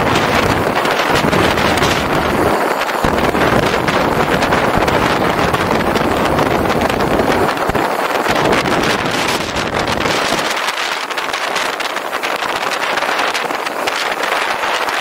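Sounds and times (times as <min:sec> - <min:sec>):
deep rumble: 0:00.0 - 0:10.5
wind buffeting microphone: 0:00.0 - 0:15.0.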